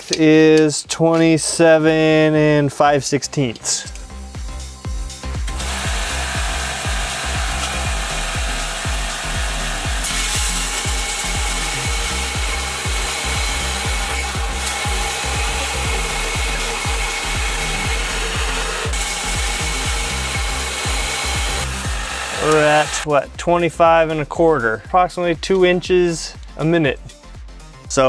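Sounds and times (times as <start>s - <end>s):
music with steady beat: 0.0s - 28.0s
belt grinder grinding steel: 4.0s - 23.0s.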